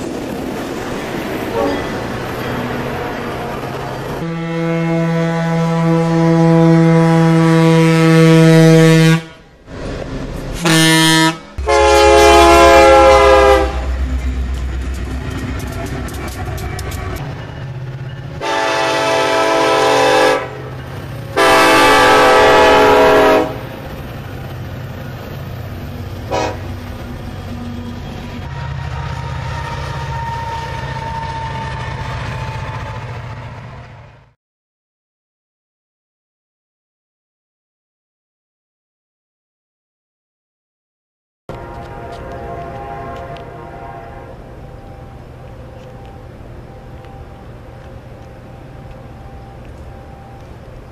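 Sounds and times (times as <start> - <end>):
freight train rumbling: 0.0 - 34.4, 41.5 - 50.9
locomotive horn blasts: 1.5 - 1.8, 2.8 - 9.5, 10.6 - 14.0, 18.4 - 20.7, 21.4 - 23.8, 26.3 - 26.8, 28.4 - 31.8, 41.5 - 44.6.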